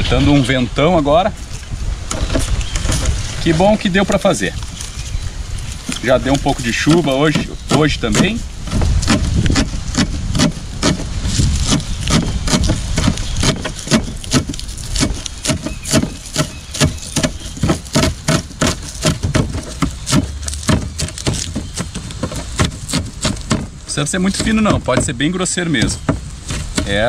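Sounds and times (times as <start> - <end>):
wind rumble on microphone: 0.0 - 27.0.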